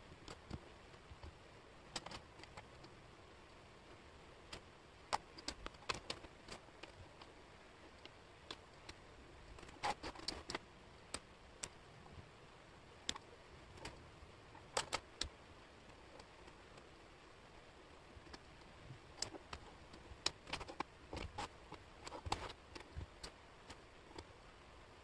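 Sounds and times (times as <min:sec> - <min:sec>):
wooden puzzle pieces clicking: 0:01.9 - 0:02.9, 0:04.5 - 0:07.3, 0:07.9 - 0:11.8, 0:14.6 - 0:15.3, 0:19.1 - 0:24.3.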